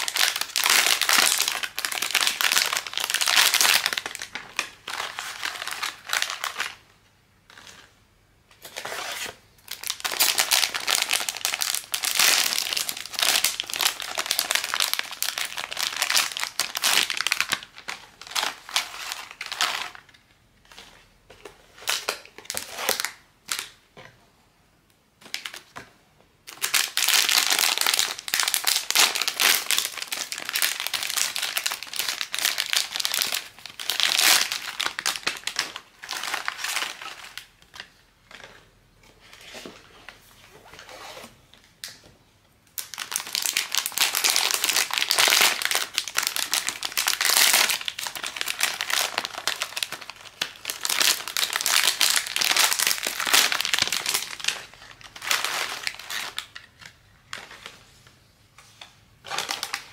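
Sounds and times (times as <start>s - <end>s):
plastic packaging crinkling: 0.0s - 6.8s, 9.7s - 20.2s, 26.5s - 38.5s, 42.8s - 57.9s, 59.2s - 59.9s.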